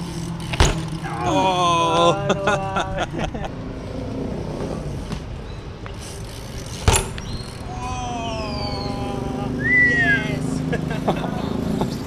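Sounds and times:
bike hitting pavement: 0.0 - 1.3, 4.6 - 7.9
traffic rumble: 0.0 - 12.0.

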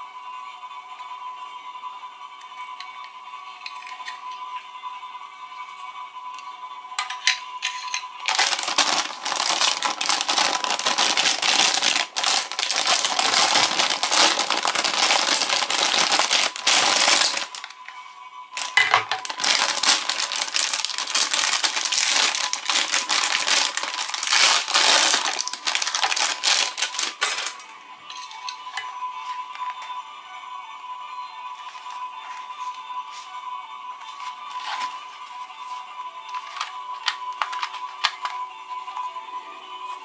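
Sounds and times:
plastic bag crinkling: 8.2 - 17.8, 18.6 - 27.6, 36.4 - 38.3.

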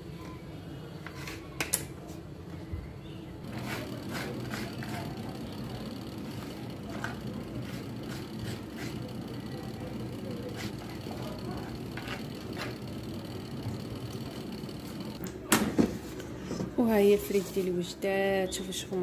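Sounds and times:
air fryer fan hum and whine: 2.6 - 17.3.

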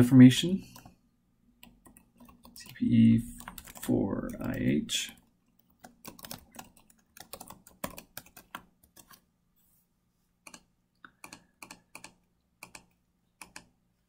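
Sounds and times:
keyboard typing: 1.6 - 9.2, 10.4 - 13.7.

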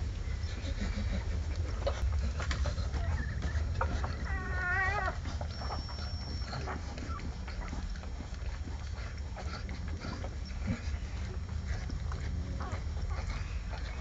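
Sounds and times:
puppies suckling clicks: 0.0 - 14.0
high puppy squeal: 2.9 - 7.9.

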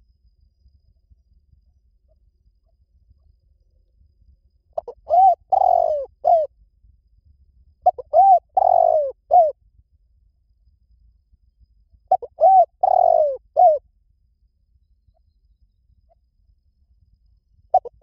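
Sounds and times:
dove cooing: 4.8 - 6.5, 7.8 - 9.6, 12.1 - 13.8, 17.7 - 18.0.

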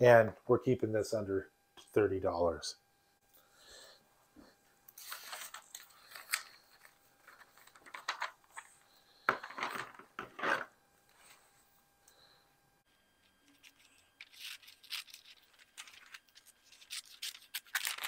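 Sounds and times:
magazine pages rustling: 13.8 - 18.0.

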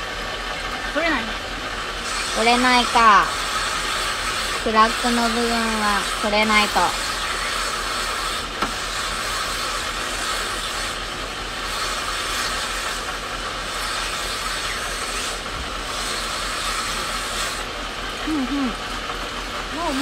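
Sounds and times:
low motor hum: 0.0 - 20.0
stone grinding on wet wheel: 2.0 - 17.8.

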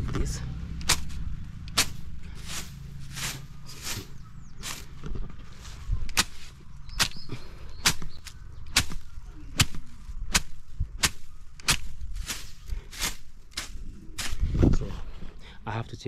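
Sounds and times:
low rumble: 0.0 - 15.6
blade swishing through grass: 0.8 - 14.7.

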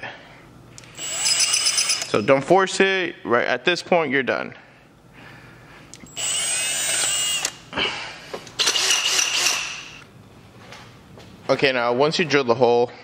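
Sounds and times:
cordless drill whining: 1.0 - 2.1, 6.1 - 7.6, 8.6 - 10.1.

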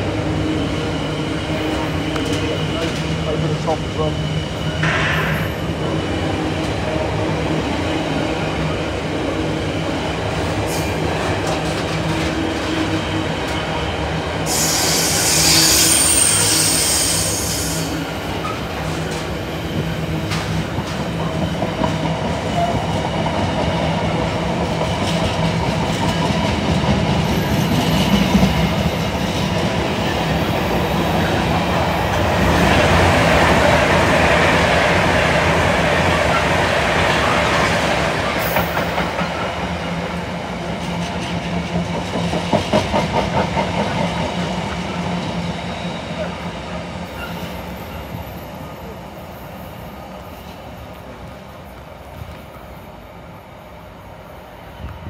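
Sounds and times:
passenger train passing: 0.0 - 55.0
high-pitched wheel squeal: 14.5 - 17.9.

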